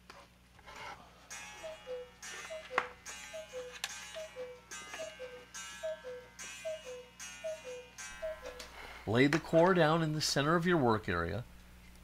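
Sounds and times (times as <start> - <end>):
repeating two-note music: 1.3 - 9.0
faint ticking beat: 1.3 - 9.6.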